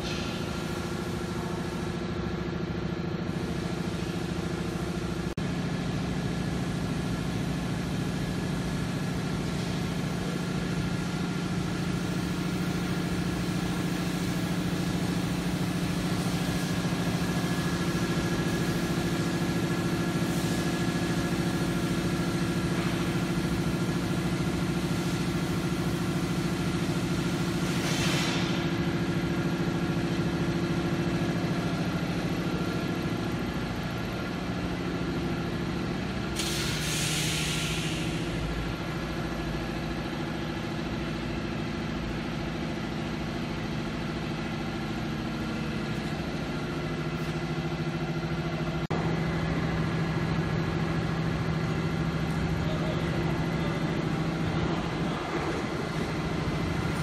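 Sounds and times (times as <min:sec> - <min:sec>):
workshop machinery humming: 0:00.0 - 0:57.0
short hiss: 0:36.4 - 0:38.3.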